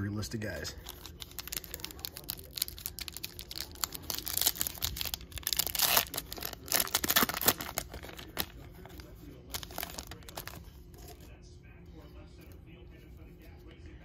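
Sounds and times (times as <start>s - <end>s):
foil wrapper tearing and crinkling: 0.8s - 10.6s.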